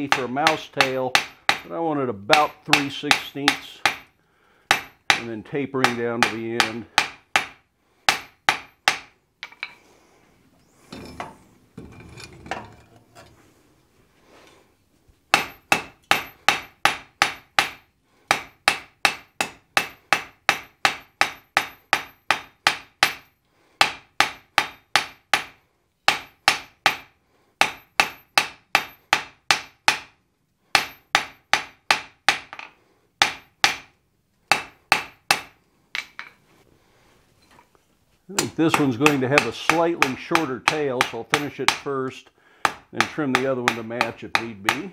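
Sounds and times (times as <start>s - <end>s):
hammer striking steel on anvil: 0.0s - 4.1s, 4.7s - 9.8s, 15.3s - 30.1s, 30.7s - 33.9s, 34.5s - 36.3s, 38.4s - 41.9s, 42.6s - 44.9s.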